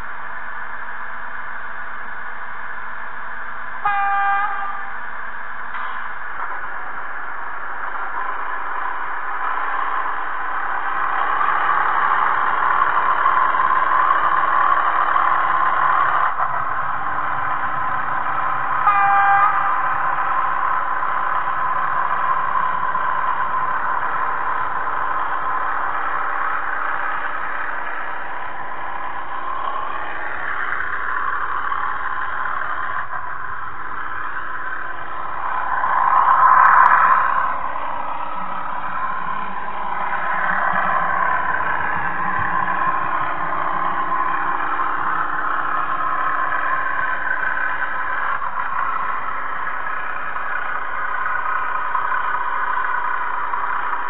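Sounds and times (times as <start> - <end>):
short horn toot: 3.8 - 4.9, 18.8 - 19.7.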